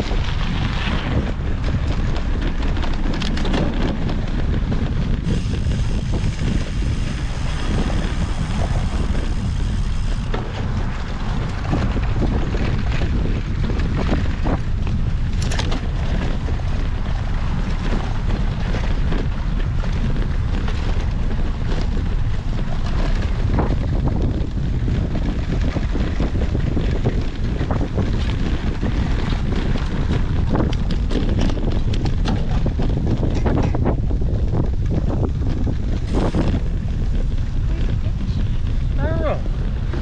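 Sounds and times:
bike clicks and rattles: 0.0 - 40.0
wind buffeting microphone: 0.0 - 40.0.

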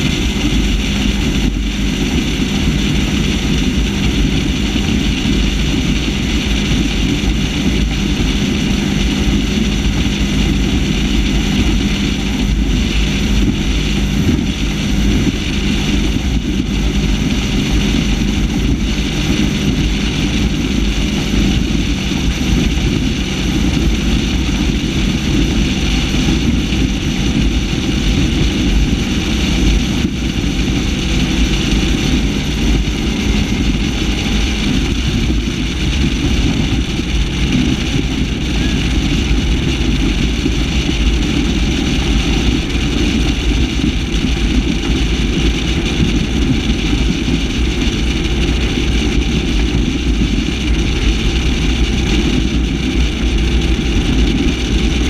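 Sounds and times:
boat engine drone: 0.0 - 55.0
rush of wind and water: 0.0 - 55.0.

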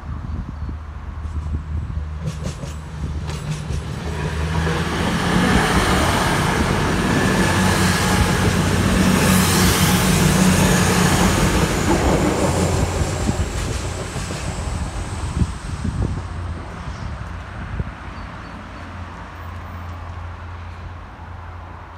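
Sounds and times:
train wheels rushing on rail: 1.1 - 20.8
diesel engines humming: 2.8 - 17.3.

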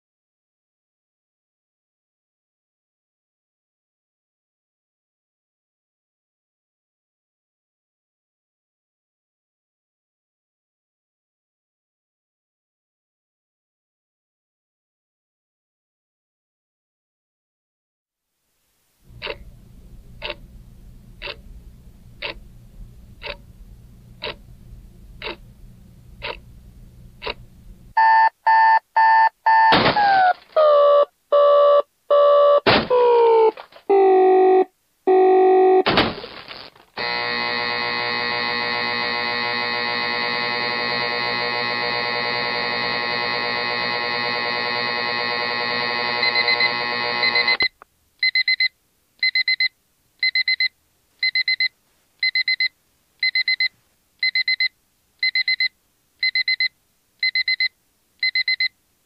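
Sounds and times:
alarm clock style beeping: 28.0 - 32.6, 37.0 - 58.7
short synthesized tones: 29.6 - 35.9
steady electronic buzz: 37.0 - 47.6.

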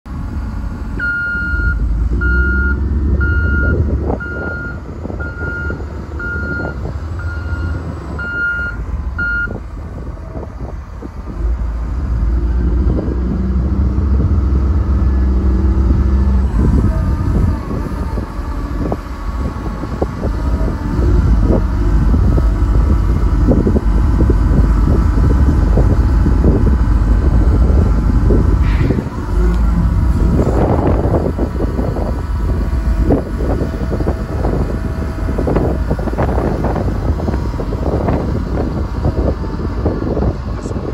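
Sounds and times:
diesel engine running: 0.0 - 40.9
reverse alarm beeping: 1.0 - 9.6.

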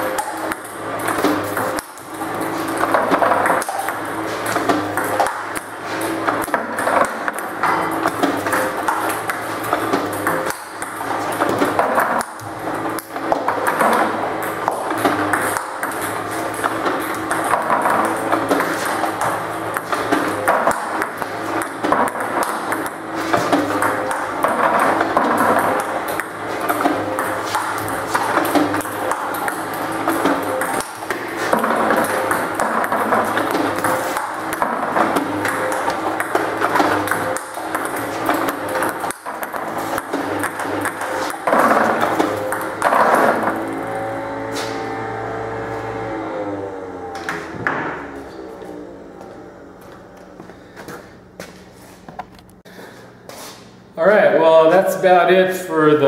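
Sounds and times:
ping pong ball clicks: 0.0 - 2.1, 2.9 - 43.8.

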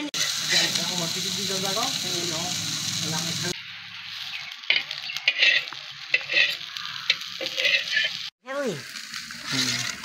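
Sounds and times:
fish sizzling in hot oil: 0.0 - 10.0.

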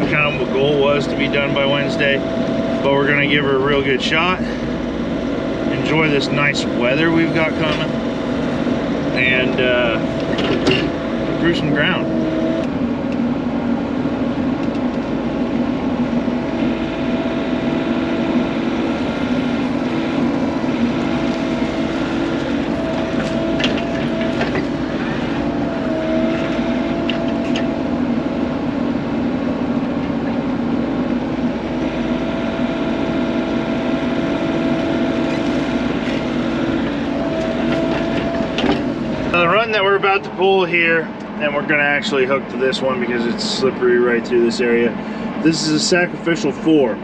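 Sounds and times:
excavator diesel engine: 0.0 - 47.0
hydraulic whine: 0.0 - 47.0
metal clanks: 10.2 - 11.0.

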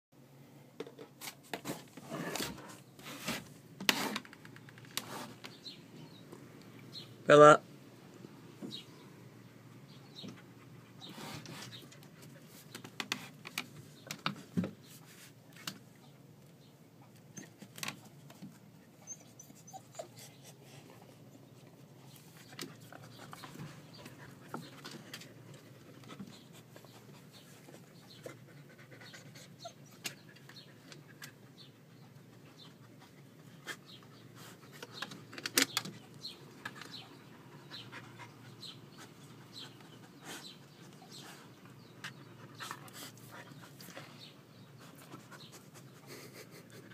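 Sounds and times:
dogs panting: 18.2 - 35.3, 36.0 - 46.9.

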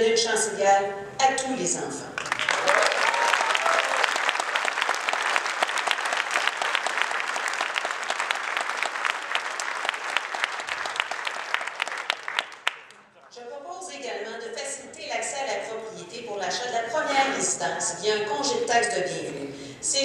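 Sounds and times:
audience applauding: 2.2 - 13.3.

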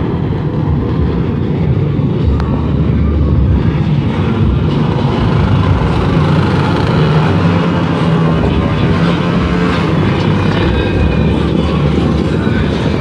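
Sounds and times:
motorcycle engines droning: 0.0 - 13.0.

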